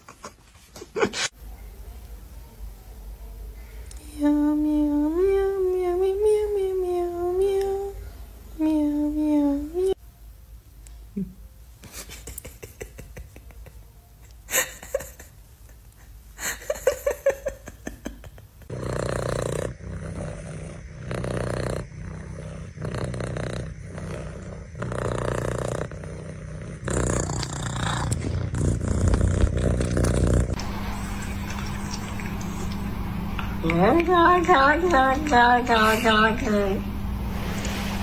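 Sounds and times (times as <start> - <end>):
cat purring loudly: 18.6 - 30.6.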